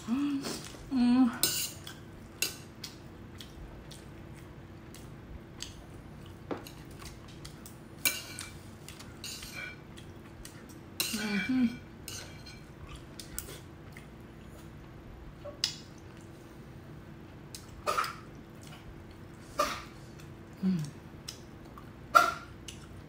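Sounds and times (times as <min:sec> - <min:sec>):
person humming: 0:00.0 - 0:01.4, 0:20.6 - 0:21.0
faint steady hum: 0:00.0 - 0:23.0.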